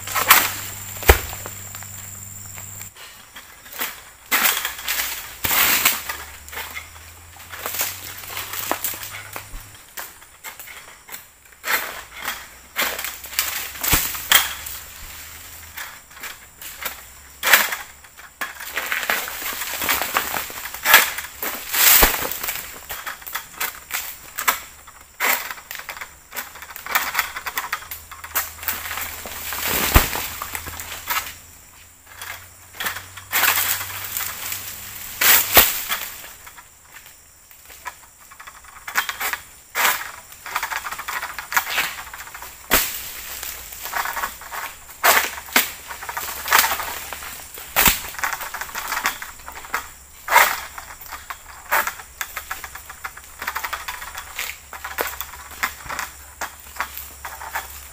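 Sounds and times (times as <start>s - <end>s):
heavy thuds: 0.0s - 2.9s
sickle cracking through palm fronds: 0.0s - 2.9s, 3.6s - 31.4s, 32.0s - 57.9s
leaves crackling: 0.0s - 11.0s, 11.6s - 57.9s.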